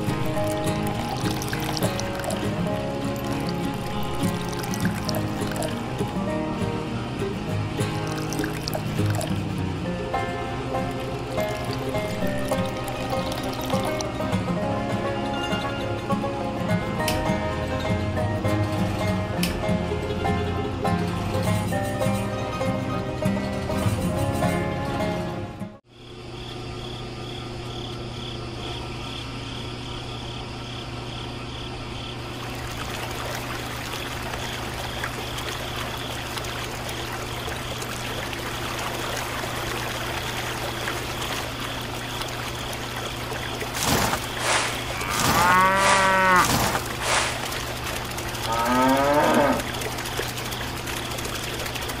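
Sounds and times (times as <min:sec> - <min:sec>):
drawn-out animal calls: 0:43.7 - 0:50.3
even hiss: 0:43.8 - 0:47.8.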